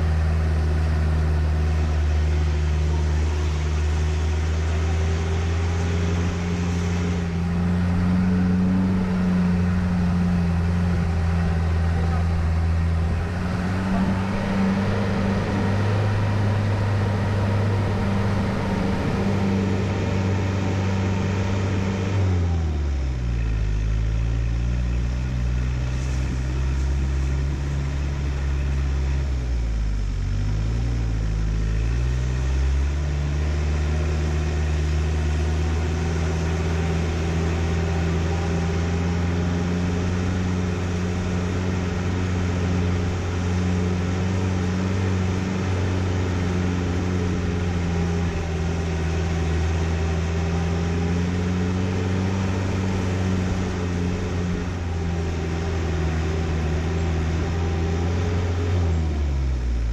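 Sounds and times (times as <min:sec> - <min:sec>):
vehicle engine running at low speed: 0:00.0 - 0:59.9.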